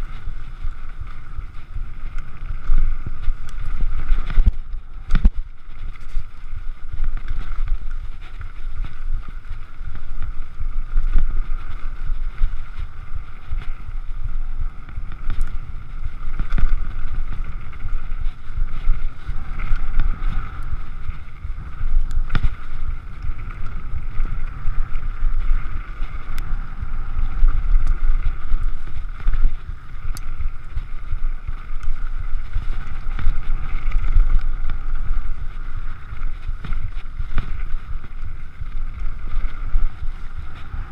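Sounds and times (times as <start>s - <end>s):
wind buffeting microphone: 0.0s - 40.9s
bike rattling clicks and knocks: 14.9s - 26.6s.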